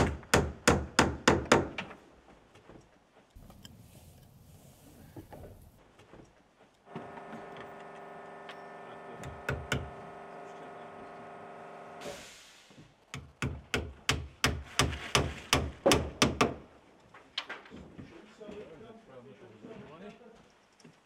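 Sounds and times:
hatchet hammering shingles: 0.0 - 1.8, 13.2 - 16.6.

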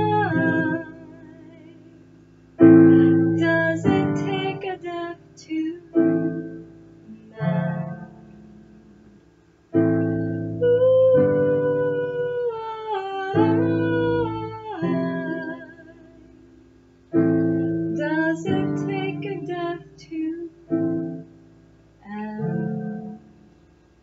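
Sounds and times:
woman singing: 0.0 - 1.9, 2.6 - 8.4, 10.6 - 16.4, 17.9 - 21.2, 22.0 - 23.3
digital piano chords: 0.0 - 24.0.

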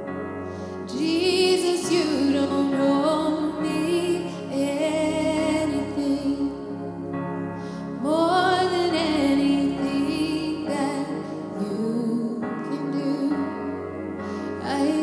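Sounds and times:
woman singing: 0.9 - 6.6, 8.0 - 13.8, 14.6 - 15.0.

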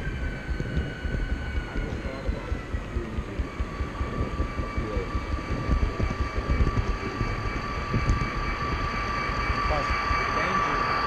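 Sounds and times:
high whine: 0.0 - 11.0.

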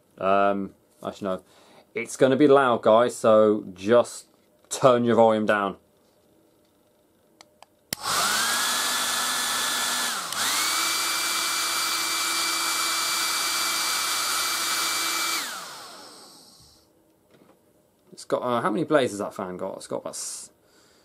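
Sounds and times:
hairdryer switch click: 7.9 - 8.7, 10.1 - 10.8
hairdryer fan whining: 7.9 - 16.9.

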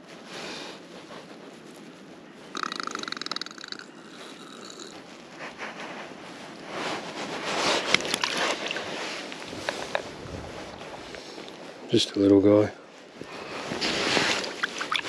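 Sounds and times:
water splashing in shallows: 7.7 - 9.8, 13.8 - 15.0.

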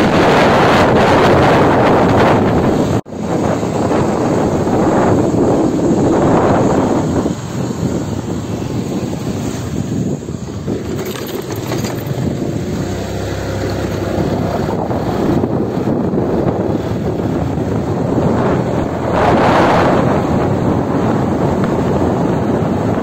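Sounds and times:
motorcycle engine rumble: 0.0 - 23.0
wind rushing over microphone: 0.0 - 23.0.

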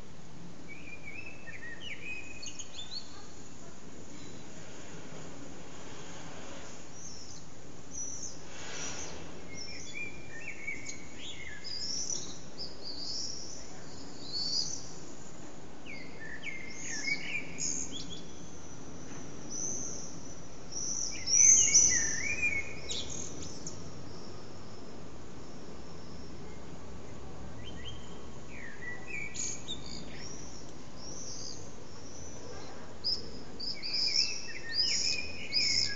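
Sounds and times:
steady low background noise: 0.0 - 35.9
blackbird singing: 0.7 - 3.4, 9.5 - 15.0, 15.8 - 18.9, 19.5 - 24.4, 27.6 - 35.9.

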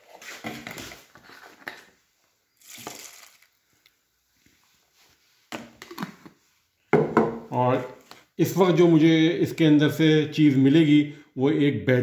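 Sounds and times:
liquid pouring into plastic tub: 2.6 - 3.6.

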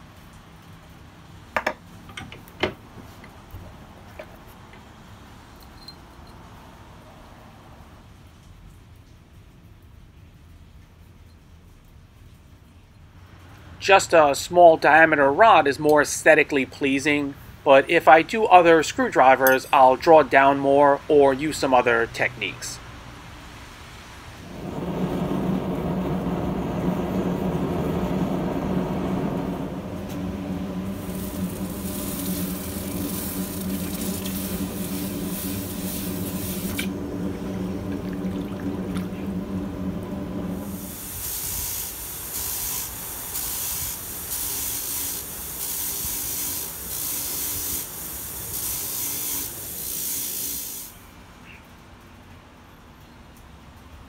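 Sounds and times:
gas forge burner roaring: 20.9 - 51.1
hot steel hissing in water: 24.4 - 36.9, 40.5 - 51.0.

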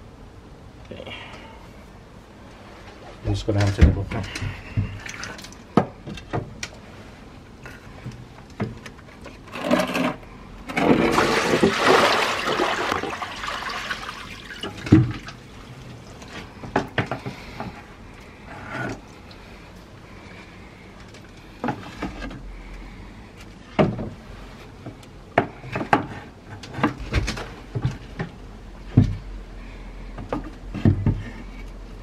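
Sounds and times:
water pouring and splashing: 10.8 - 16.2.

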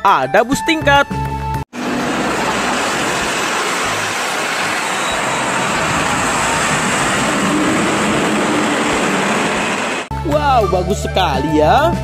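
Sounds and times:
bus driving by: 1.7 - 10.2
hiss of passing vehicles: 1.8 - 10.1.

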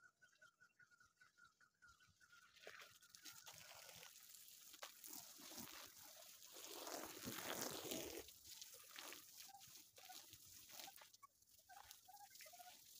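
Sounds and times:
water splashing onto grass: 3.0 - 12.9.

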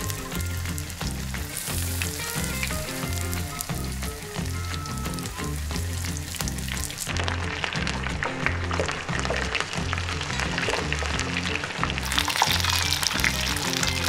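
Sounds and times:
background music with bass: 0.0 - 14.0
fish deep-frying in hot oil: 0.0 - 14.0.

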